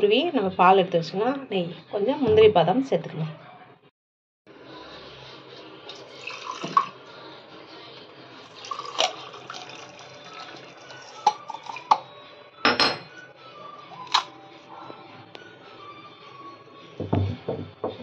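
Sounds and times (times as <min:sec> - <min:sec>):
water dripping into steel cup: 0:05.9 - 0:06.9, 0:08.6 - 0:12.1.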